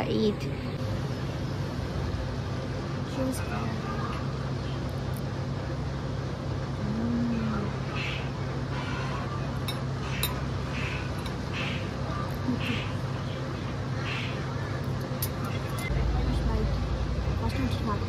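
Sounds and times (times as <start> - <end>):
street ambience hum: 0.0 - 18.0.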